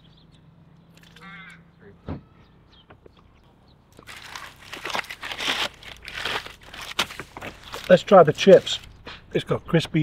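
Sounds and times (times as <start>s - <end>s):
paper wrapper crinkling: 4.0s - 9.0s.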